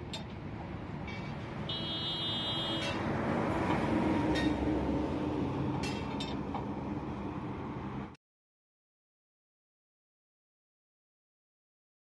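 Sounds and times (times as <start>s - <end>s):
traffic rumble: 0.0s - 8.2s
vehicle horn tooting: 1.7s - 3.0s.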